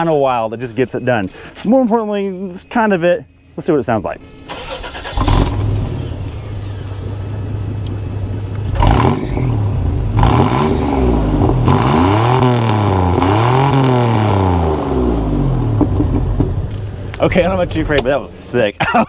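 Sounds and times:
engine idling and revving: 4.2 - 18.4
exhaust leak: 4.5 - 10.8.

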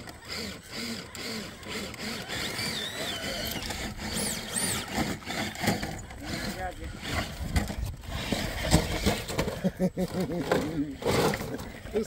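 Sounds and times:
electric motor whining in bursts: 0.0 - 9.5.

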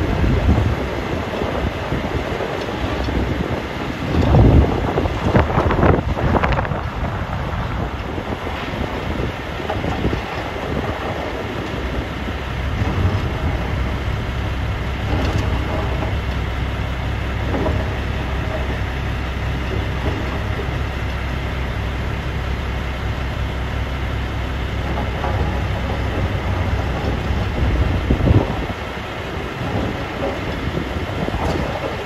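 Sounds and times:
irregular clattering: 0.0 - 21.7, 24.3 - 32.0
diesel machinery rumbling: 0.0 - 32.0.

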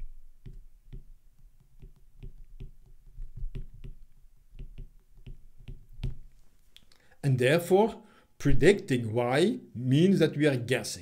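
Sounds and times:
stylus tapping on tablet: 0.4 - 6.3
pen thumping surface: 1.8 - 6.3.

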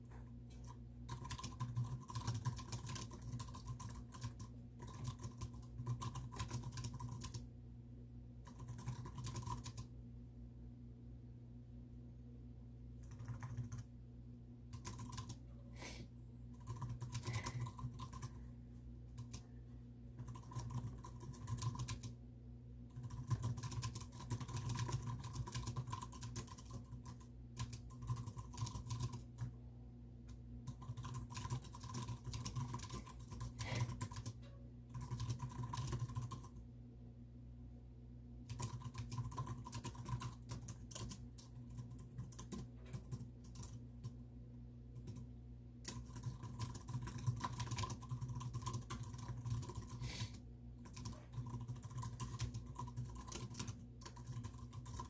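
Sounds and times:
steady low hum: 0.0 - 55.0
typing on computer keyboard: 0.1 - 7.5, 8.4 - 9.9, 13.0 - 13.9, 14.7 - 15.4, 16.5 - 18.4, 19.1 - 19.5, 20.2 - 22.2, 22.9 - 29.6, 30.3 - 36.6, 38.5 - 44.2, 45.0 - 55.0.

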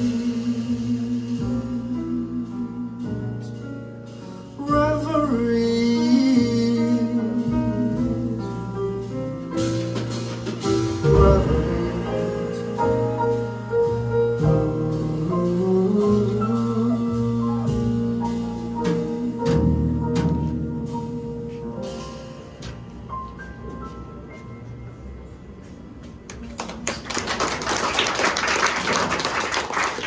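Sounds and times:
jazz band playing: 0.0 - 25.3
person singing wordless lines: 4.6 - 8.6, 11.1 - 13.2.

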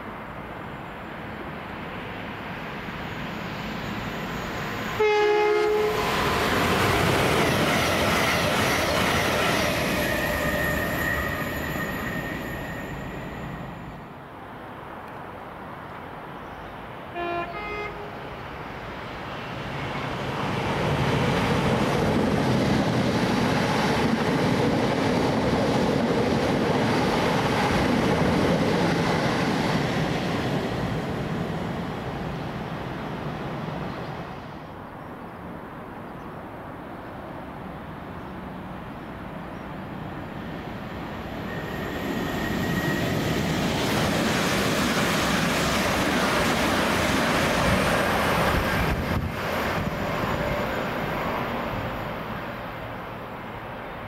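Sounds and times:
train passing at speed: 0.0 - 54.0
train horn toot: 4.9 - 6.3, 17.1 - 18.3.

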